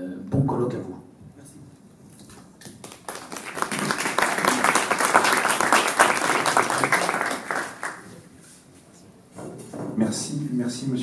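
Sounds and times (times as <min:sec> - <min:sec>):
crowd applauding: 0:02.6 - 0:08.2.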